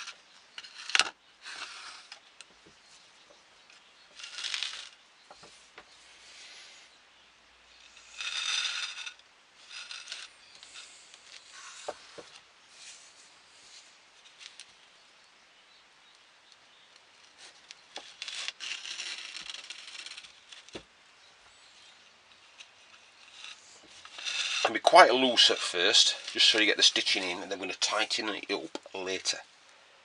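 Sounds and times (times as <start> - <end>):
cord rasping against wood: 23.3 - 27.4.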